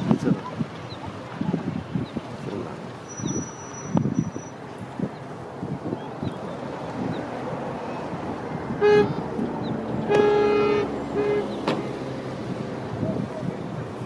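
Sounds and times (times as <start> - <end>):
wind noise: 0.0 - 14.0
vehicle horn toots: 8.8 - 9.3, 10.1 - 11.7.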